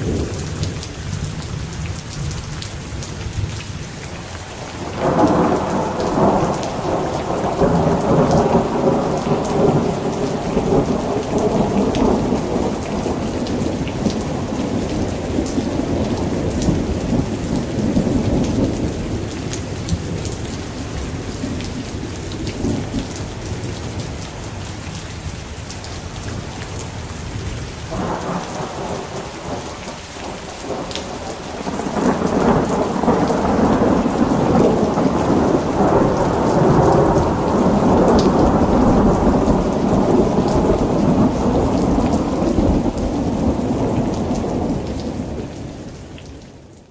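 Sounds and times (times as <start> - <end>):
steady rain: 0.0 - 46.9
rolling thunder: 4.8 - 23.2, 27.9 - 46.0.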